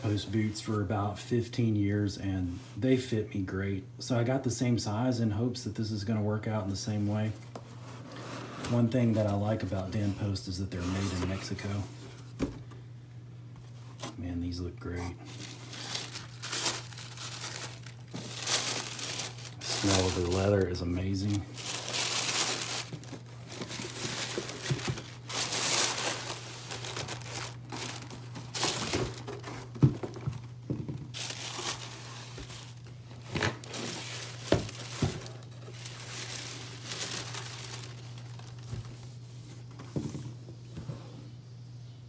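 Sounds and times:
tissue paper rustling: 15.2s - 30.4s, 31.1s - 39.6s.

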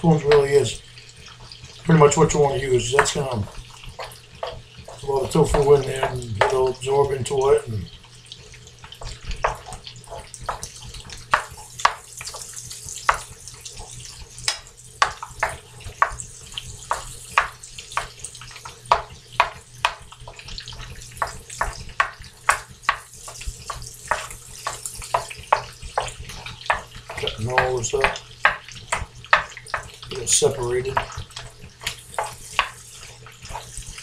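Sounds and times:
faint sizzle: 0.0s - 34.0s
wooden spoon scraping a pan: 2.0s - 6.9s, 9.0s - 12.5s, 20.8s - 34.0s.

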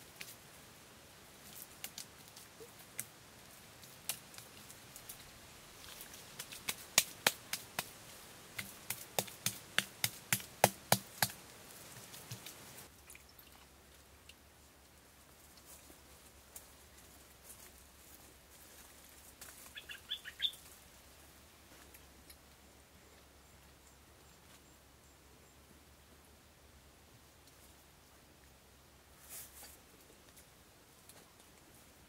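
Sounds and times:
hands slapping clay: 6.3s - 7.9s, 8.6s - 11.4s.

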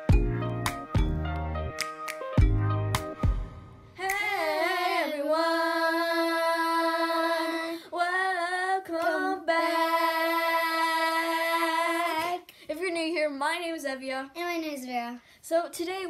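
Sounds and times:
girls singing drawn-out notes: 4.0s - 12.5s.

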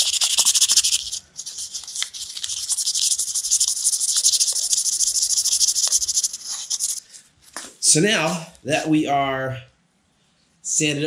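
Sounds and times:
sandpaper rasping on wood: 0.0s - 7.0s.

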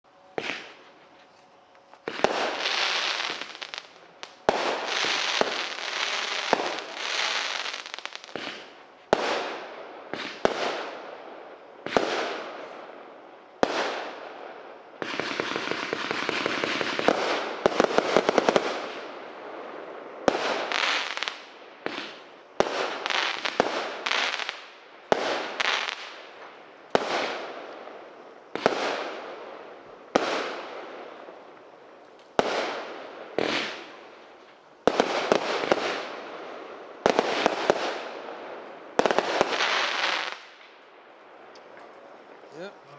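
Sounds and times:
firework crackle: 0.0s - 42.9s
firework bangs: 0.3s - 1.0s, 2.0s - 11.2s, 11.8s - 12.8s, 13.6s - 40.8s
rapid firework pops: 15.0s - 18.8s.

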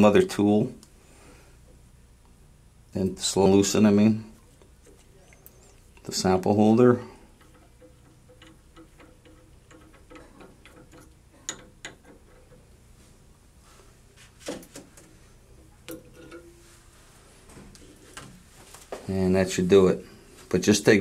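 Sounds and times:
metallic clicks of unscrewing: 7.4s - 12.6s.

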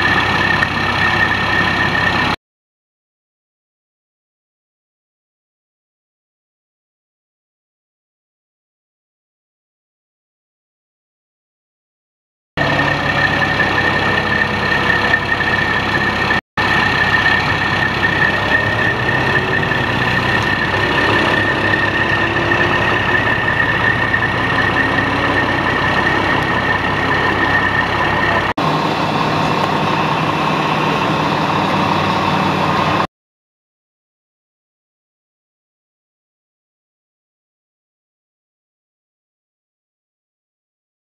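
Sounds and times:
heavy engine idling: 0.0s - 2.4s, 12.6s - 33.1s
high whine: 12.6s - 33.1s.

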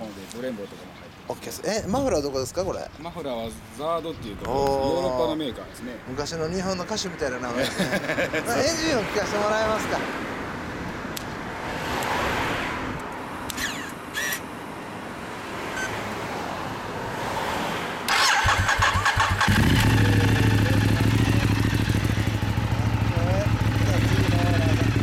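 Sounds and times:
motorcycle starter cranking: 18.1s - 20.1s
motorcycle engine idling: 18.4s - 25.0s.

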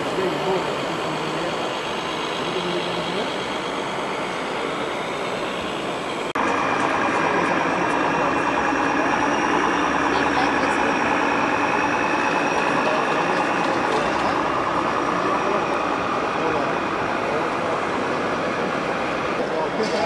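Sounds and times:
model truck engine hum: 0.0s - 20.0s
murmur of crowd: 6.4s - 20.0s.

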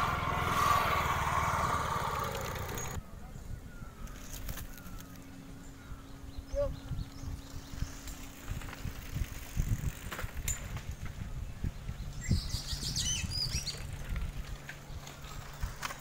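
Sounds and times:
bikes rattling over dirt road: 0.0s - 3.0s, 6.9s - 11.8s, 12.6s - 16.0s
wind buffeting microphone: 5.8s - 16.0s.

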